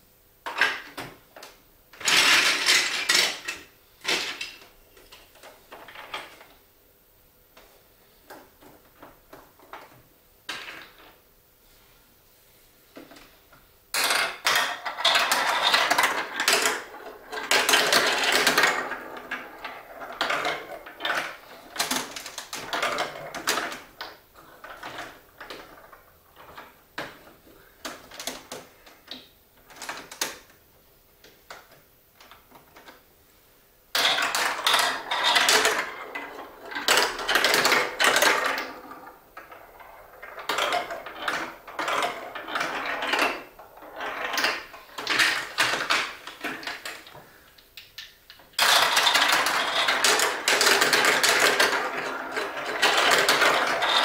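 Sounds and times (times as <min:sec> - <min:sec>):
marble run clicking and clattering: 0:02.0 - 0:04.6, 0:14.0 - 0:27.2, 0:33.9 - 0:54.0.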